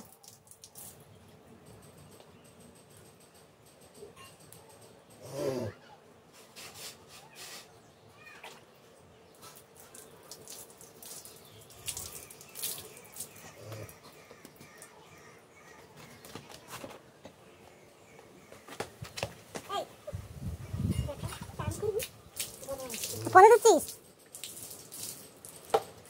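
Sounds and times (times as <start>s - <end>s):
wet splashing and rubbing: 9.4s - 13.9s.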